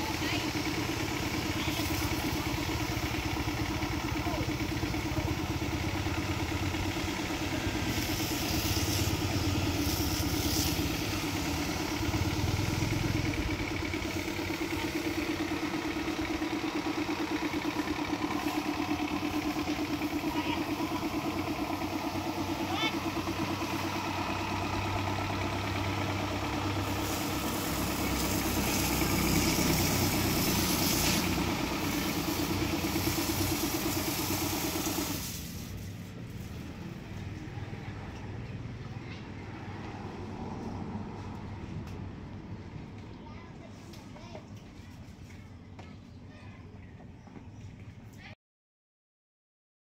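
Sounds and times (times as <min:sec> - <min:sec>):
small motor pulsing hum: 0:00.0 - 0:35.5
hiss: 0:00.0 - 0:36.9.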